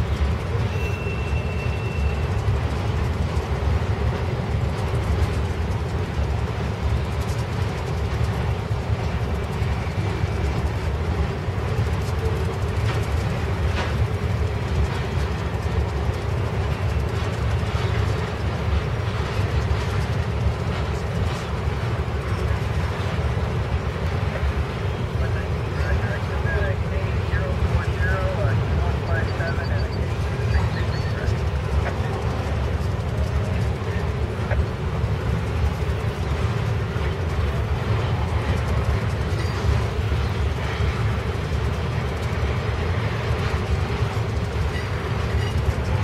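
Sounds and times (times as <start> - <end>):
train wheels rumbling on rail: 0.0 - 46.0.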